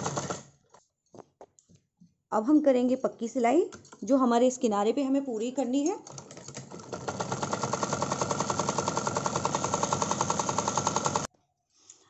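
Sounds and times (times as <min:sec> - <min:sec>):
sewing machine stitching: 0:00.0 - 0:00.5, 0:06.0 - 0:11.3.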